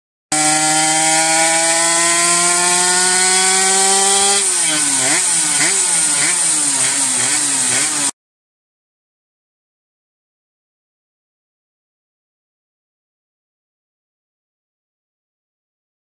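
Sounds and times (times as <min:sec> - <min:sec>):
two-stroke engine revving: 0:00.3 - 0:08.2.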